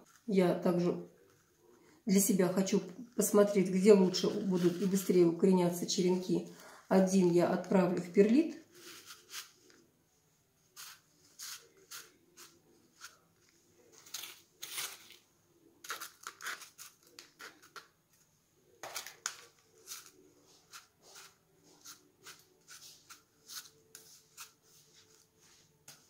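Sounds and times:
granules crunching in plastic cup: 14.0 - 15.2.

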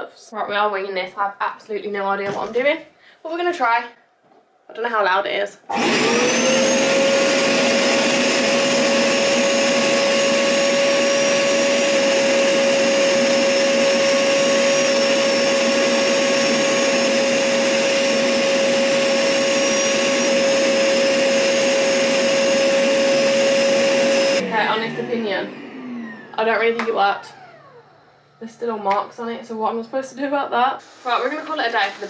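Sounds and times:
carpet washer motor whine: 5.7 - 28.4.

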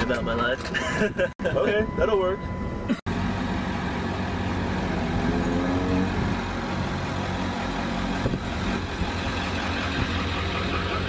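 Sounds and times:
heavy vehicle engine idling: 6.1 - 11.0.

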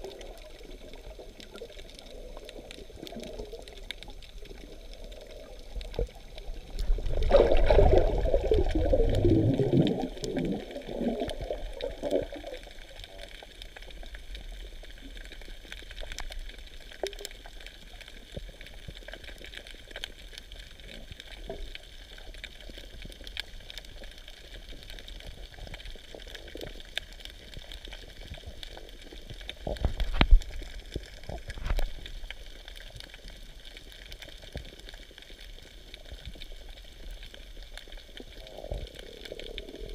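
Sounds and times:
water gurgling and bubbling: 0.0 - 19.9, 25.4 - 32.7, 35.6 - 39.9
muffled underwater hiss: 0.0 - 39.9.

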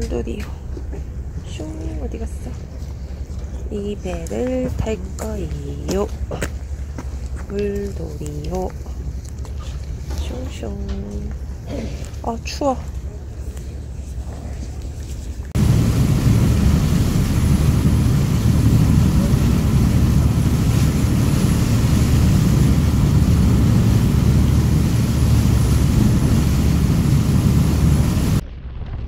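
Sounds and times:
boat engine rumble: 0.0 - 28.4
wind: 0.0 - 29.0
rushing water: 15.5 - 28.4.

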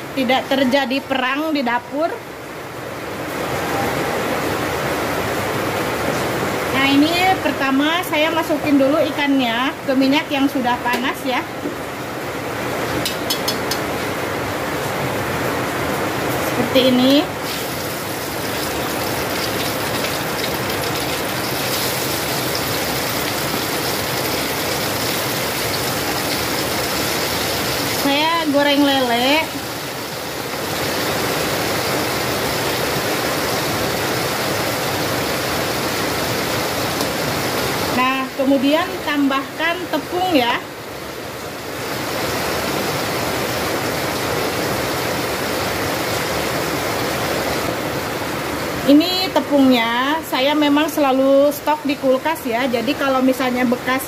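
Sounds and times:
fish frying in hot oil: 17.0 - 31.1.

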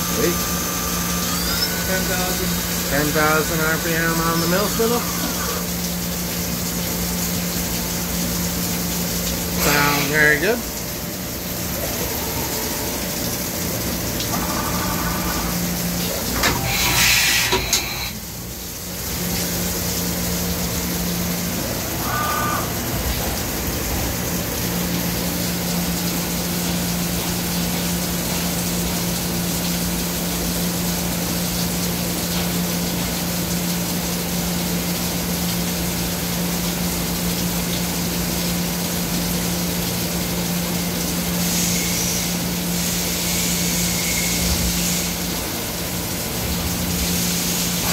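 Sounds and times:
machine hiss: 0.0 - 5.8, 14.2 - 18.4, 41.3 - 45.6
milling spindle hum: 0.0 - 6.0.

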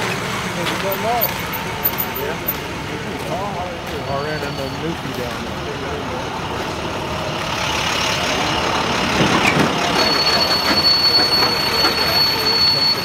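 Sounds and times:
heavy diesel machinery running: 0.0 - 13.0.

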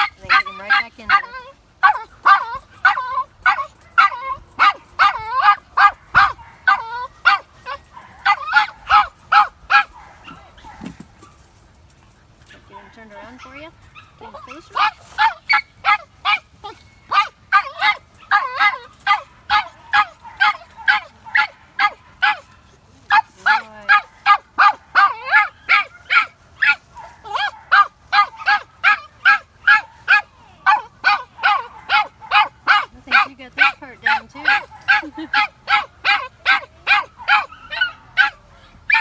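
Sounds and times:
dog barking rapid high yaps: 1.8 - 10.9, 23.9 - 39.0.

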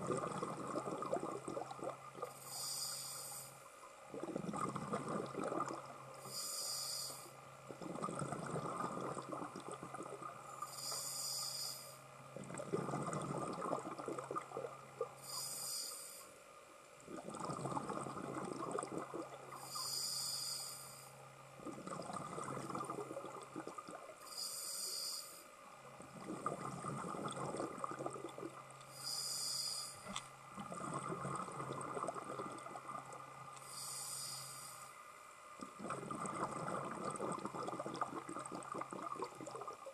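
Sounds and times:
exhaust bubbles gurgling: 0.0 - 2.4, 4.1 - 6.0, 7.7 - 10.4, 12.4 - 15.1, 17.1 - 19.6, 21.6 - 24.2, 26.0 - 28.8, 30.0 - 33.3, 35.6 - 39.9
regulator hiss on inhale: 2.2 - 3.7, 6.2 - 7.5, 10.4 - 12.1, 15.2 - 16.5, 19.5 - 21.2, 24.2 - 25.7, 28.8 - 30.2, 33.5 - 35.8.

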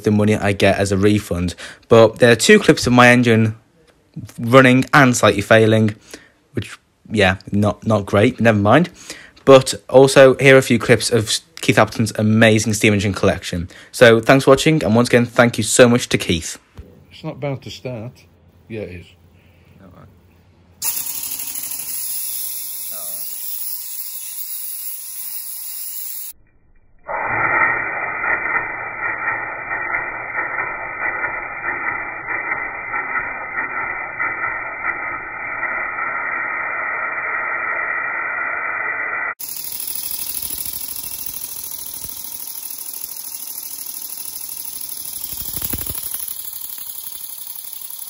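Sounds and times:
model steam engine hissing: 22.2 - 24.6.

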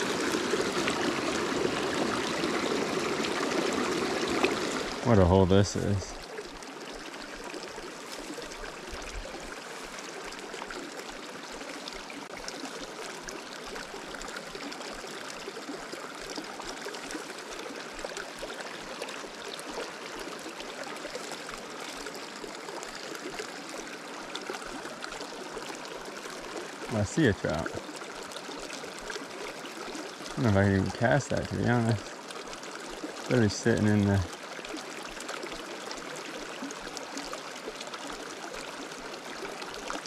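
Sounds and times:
creek water running: 0.0 - 40.0.

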